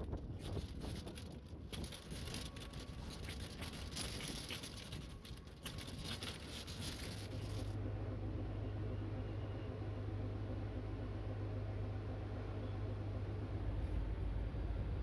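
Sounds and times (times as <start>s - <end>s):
pattering and rattling: 0.0s - 7.7s
steady low hum: 0.0s - 15.0s
vehicle noise: 0.0s - 15.0s.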